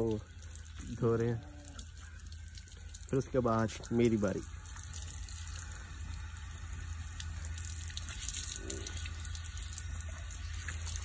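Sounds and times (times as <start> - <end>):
water pouring and splashing: 0.0 - 11.0.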